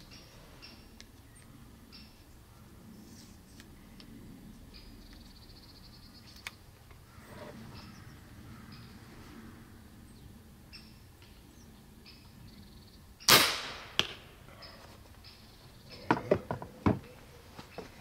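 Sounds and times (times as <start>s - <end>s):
airgun shot with hiss: 13.3s - 14.2s
arrow striking target: 13.3s - 14.3s.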